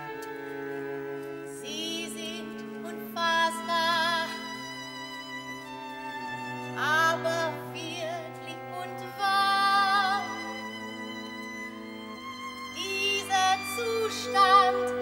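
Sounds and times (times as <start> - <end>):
held string chords: 0.0 - 15.0
woman singing opera: 1.5 - 4.9, 6.8 - 10.8, 12.7 - 15.0.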